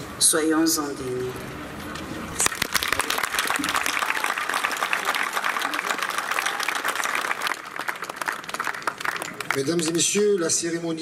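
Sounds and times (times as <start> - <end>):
audience applauding: 2.4 - 10.4.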